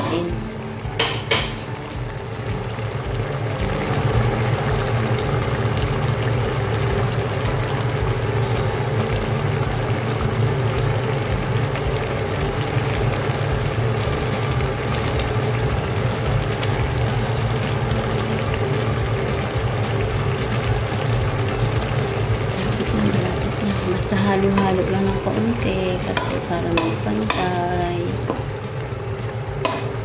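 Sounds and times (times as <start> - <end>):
pot bubbling and hissing: 0.0 - 30.0
low hum: 1.7 - 30.0.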